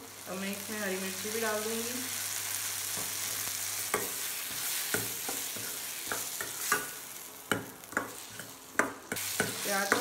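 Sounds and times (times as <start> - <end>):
frying sizzle: 0.0 - 10.0
spoon clinking and scraping pan: 3.9 - 10.0.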